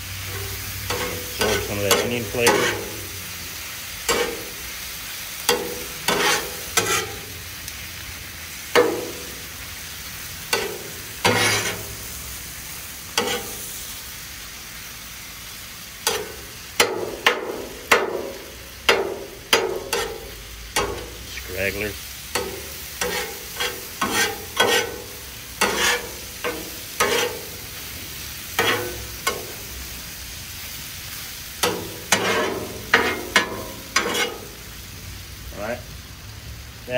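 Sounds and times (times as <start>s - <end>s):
food sizzling on griddle: 0.0s - 36.9s
metal spatula scraping griddle: 0.2s - 4.8s, 5.4s - 7.4s, 8.7s - 9.5s, 10.5s - 12.2s, 13.1s - 13.8s, 16.0s - 29.8s, 31.6s - 34.7s.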